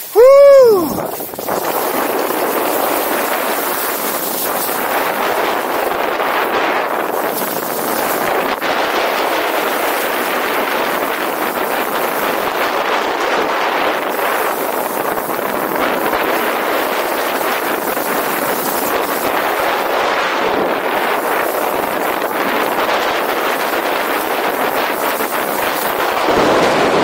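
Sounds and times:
skis sliding over snow: 0:00.0 - 0:27.0
wind on microphone: 0:00.0 - 0:27.0.

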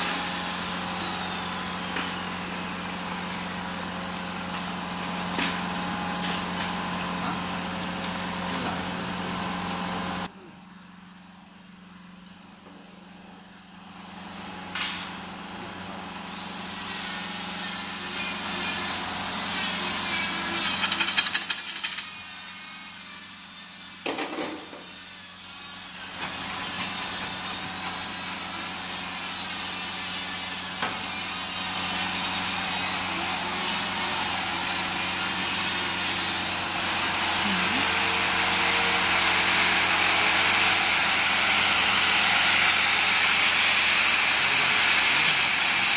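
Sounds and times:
machine humming: 0:31.2 - 0:42.3.

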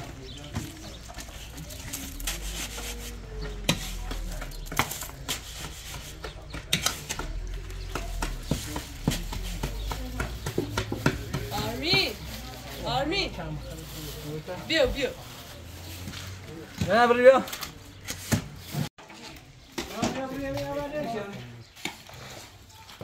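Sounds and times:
trowel scraping mortar: 0:00.5 - 0:07.5.

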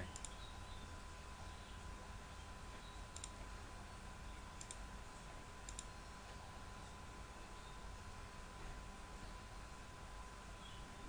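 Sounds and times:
faint steady background hum: 0:00.0 - 0:11.0
computer mouse button clicking: 0:03.2 - 0:03.4, 0:05.7 - 0:05.9.

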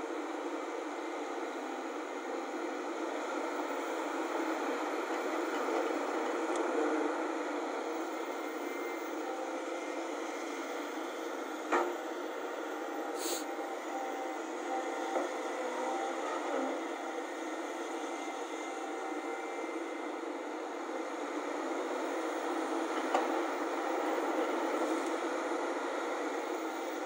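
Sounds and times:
excavator diesel engines running: 0:00.1 - 0:27.0
brief hiss: 0:13.2 - 0:13.5.

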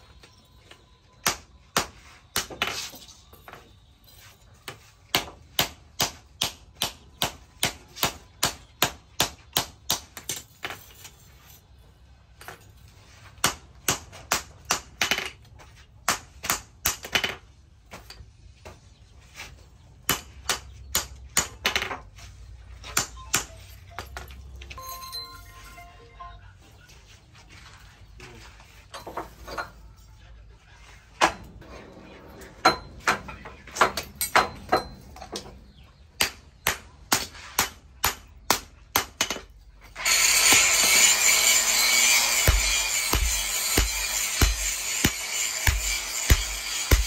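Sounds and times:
hammer striking metal on anvil: 0:32.6 - 0:35.1, 0:40.3 - 0:47.0.

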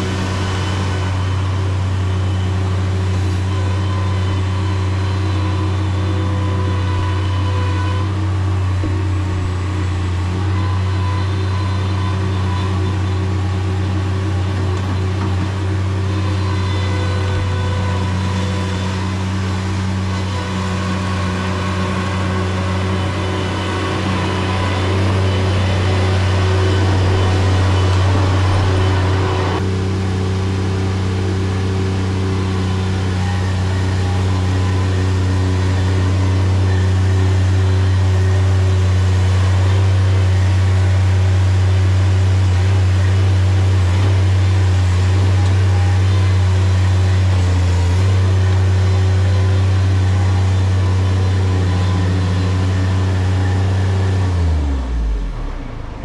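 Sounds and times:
skid steer engine running: 0:00.0 - 0:56.0
rushing noise: 0:16.2 - 0:31.8.

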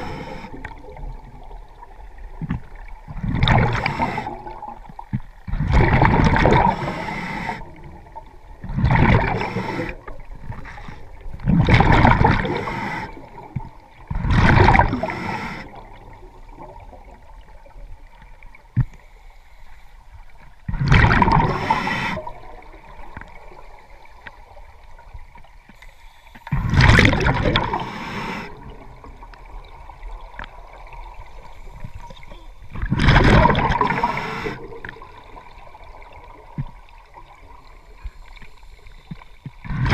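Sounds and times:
exhaled bubbles bursting: 0:00.0 - 0:07.0, 0:07.8 - 0:10.4, 0:11.3 - 0:17.2, 0:20.7 - 0:23.2, 0:26.5 - 0:27.9, 0:32.8 - 0:37.4.

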